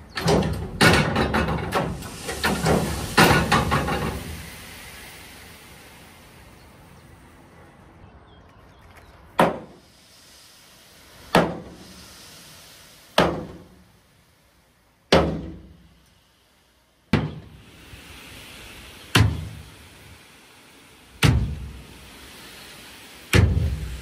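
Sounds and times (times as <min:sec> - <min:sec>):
heavy blows on metal: 0:15.1 - 0:15.9, 0:23.3 - 0:24.0.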